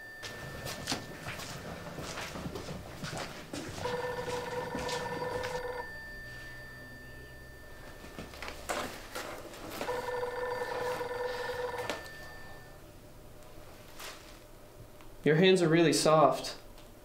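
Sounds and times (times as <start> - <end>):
telephone ringing: 0.0 - 2.1, 3.8 - 9.0, 9.7 - 12.9.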